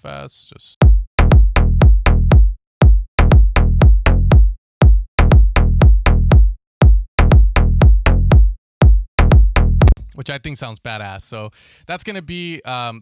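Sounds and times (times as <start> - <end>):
drum machine kick: 0.8 - 10.1
synth bass line: 1.2 - 10.0.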